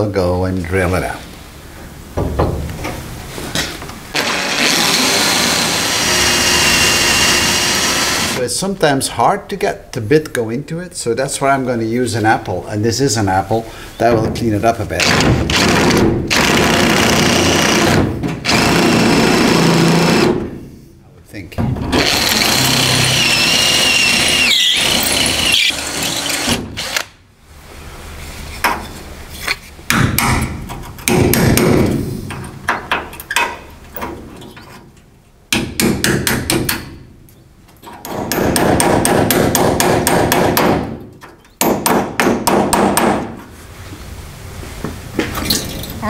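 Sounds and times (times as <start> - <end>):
cordless drill whining: 4.2 - 8.4, 22.0 - 27.1.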